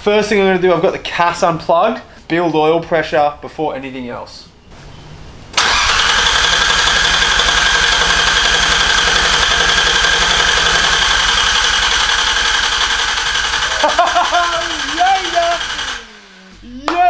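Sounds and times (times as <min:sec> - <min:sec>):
engine cranking on starter motor: 0:05.6 - 0:16.7.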